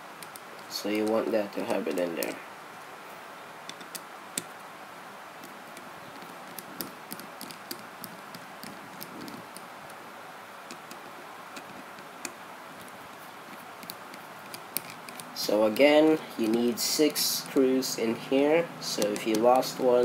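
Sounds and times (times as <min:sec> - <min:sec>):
steady hiss: 0:00.0 - 0:20.0
screwdriver ticks and clicks: 0:03.7 - 0:04.5, 0:05.4 - 0:10.0, 0:10.7 - 0:13.0, 0:13.8 - 0:15.8, 0:18.9 - 0:19.9.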